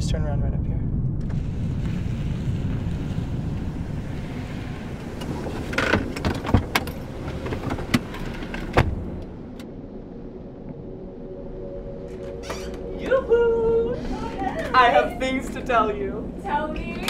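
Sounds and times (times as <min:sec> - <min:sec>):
road rumble inside car: 0:00.0 - 0:09.7.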